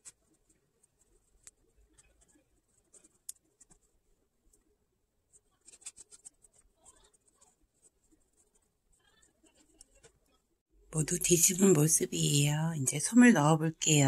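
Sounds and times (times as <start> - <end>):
small clicks and scrapes: 0.0 - 4.7, 5.3 - 10.4
fabric rustling and scratching: 5.3 - 8.8.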